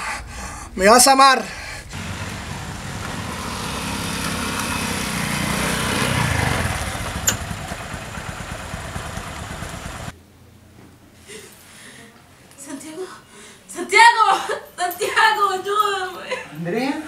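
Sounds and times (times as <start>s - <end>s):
small motorcycle engine passing: 1.9s - 10.1s.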